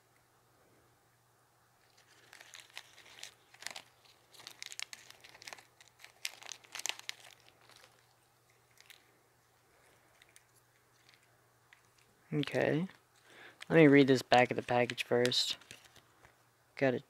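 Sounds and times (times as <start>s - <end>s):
plastic packaging crinkling: 1.8s - 16.4s.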